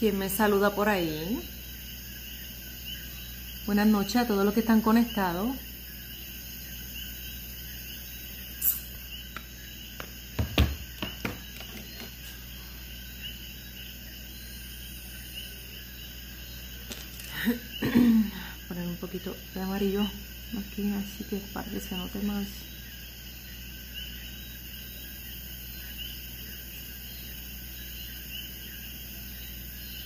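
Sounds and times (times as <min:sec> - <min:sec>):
woman speaking: 0:00.0 - 0:01.5, 0:03.7 - 0:05.6, 0:18.2 - 0:22.6
background hiss: 0:00.0 - 0:30.0
cricket chirps: 0:00.0 - 0:30.0
sharp knocks and taps: 0:09.3 - 0:12.2.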